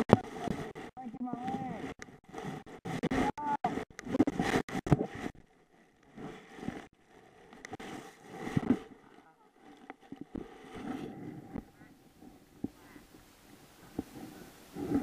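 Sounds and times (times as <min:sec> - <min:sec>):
camera knocking and scraping: 0:00.0 - 0:12.9, 0:13.8 - 0:15.0
rustling: 0:00.0 - 0:15.0.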